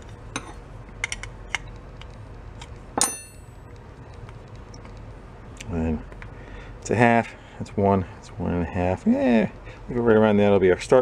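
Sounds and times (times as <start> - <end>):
sharp metallic clink: 3.0 - 3.5.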